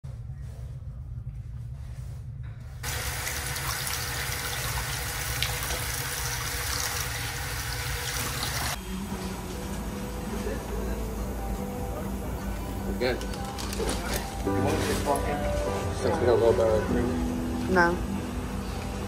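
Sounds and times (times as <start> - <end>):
water running from faucet: 2.8 - 8.8.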